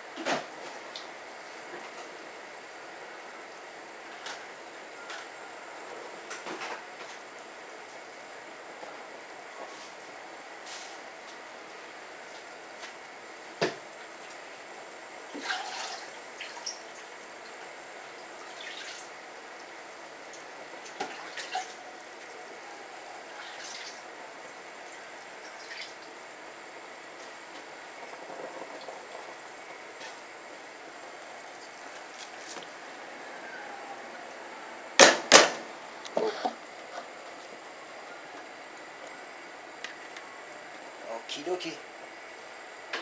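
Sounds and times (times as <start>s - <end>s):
water bubbling in a pot: 14.0s - 31.8s.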